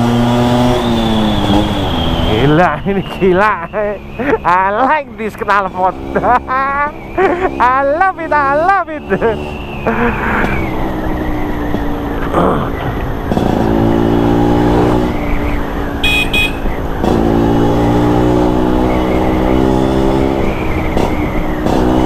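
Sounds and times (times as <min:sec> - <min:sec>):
scooter engine accelerating: 0:00.0 - 0:22.0
short high beep: 0:16.0 - 0:16.7.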